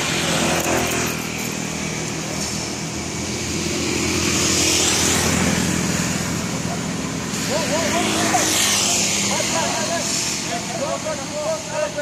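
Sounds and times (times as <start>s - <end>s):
small engine running: 0.0s - 12.0s.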